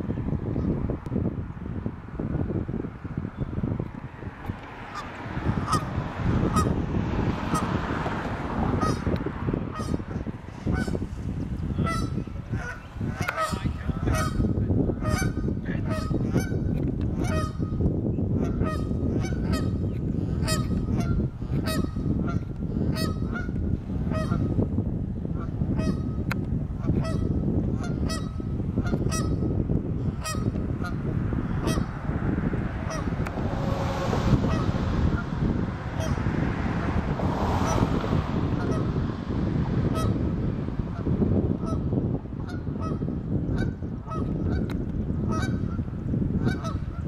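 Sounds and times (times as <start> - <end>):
steady low rumble: 0.0 - 47.0
geese honking: 4.9 - 6.8, 8.7 - 9.1, 9.7 - 11.1, 11.7 - 17.7, 18.4 - 24.6, 26.9 - 29.4, 30.0 - 31.0, 31.6 - 32.0, 32.8 - 35.3, 35.9 - 36.2, 39.9 - 40.3, 42.4 - 44.7, 45.3 - 45.8, 46.4 - 47.0.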